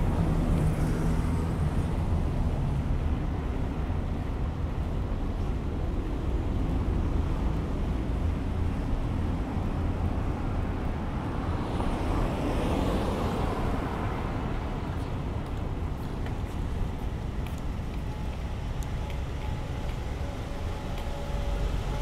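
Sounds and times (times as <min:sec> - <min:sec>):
traffic rumble: 0:00.0 - 0:22.0.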